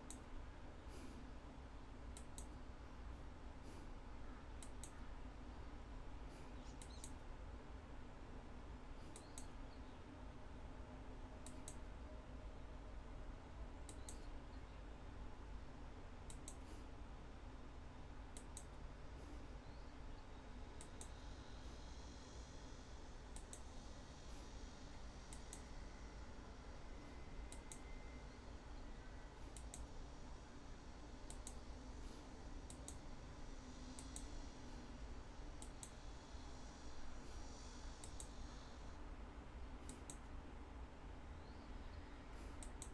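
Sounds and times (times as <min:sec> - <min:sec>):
computer mouse clicks: 0:00.0 - 0:00.3, 0:02.1 - 0:02.6, 0:04.5 - 0:05.1, 0:06.6 - 0:07.3, 0:09.0 - 0:09.9, 0:11.4 - 0:11.9, 0:13.8 - 0:14.4, 0:16.2 - 0:16.9, 0:18.3 - 0:18.8, 0:19.7 - 0:22.4, 0:23.3 - 0:24.6, 0:25.2 - 0:25.9, 0:27.5 - 0:28.1, 0:29.4 - 0:30.0, 0:31.2 - 0:34.8, 0:35.5 - 0:38.8, 0:39.8 - 0:40.4, 0:41.4 - 0:42.9
faint steady hum: 0:00.0 - 0:42.9.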